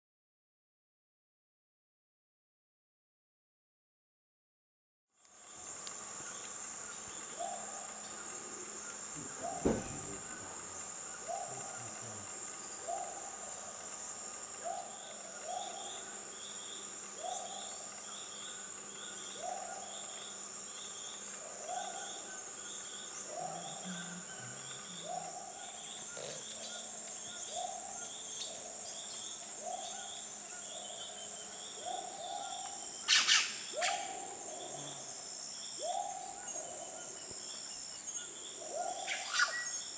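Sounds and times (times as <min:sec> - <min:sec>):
high insect buzz: 0:05.2 - 0:39.9
knock: 0:09.2 - 0:10.1.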